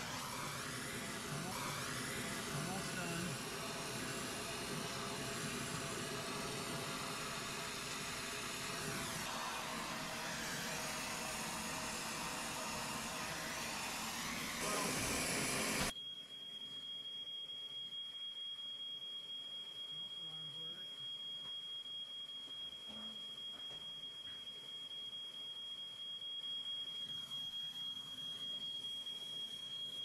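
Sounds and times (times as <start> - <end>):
brazing torch hissing: 0.0 - 15.9
steady high-pitched tone: 0.0 - 30.0.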